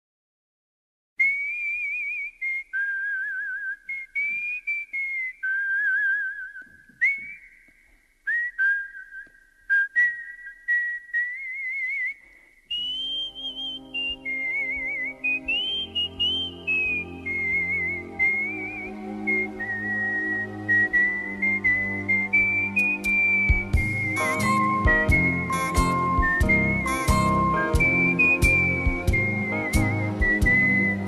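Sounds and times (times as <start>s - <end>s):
person whistling a tune: 1.2s - 31.0s
backing music: 12.8s - 31.0s.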